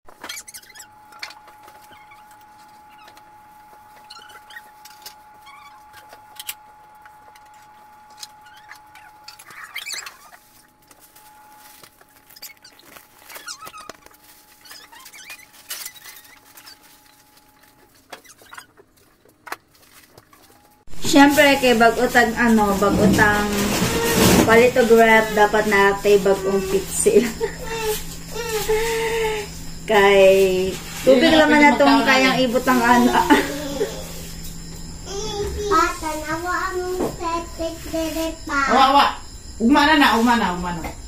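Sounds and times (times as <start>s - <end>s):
plastic bag rustling: 7.9s - 35.4s.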